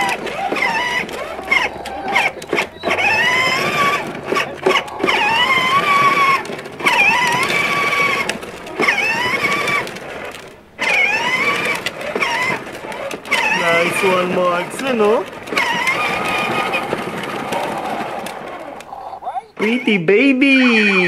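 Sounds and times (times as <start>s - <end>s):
child making wavering sounds: 18.9s - 19.6s.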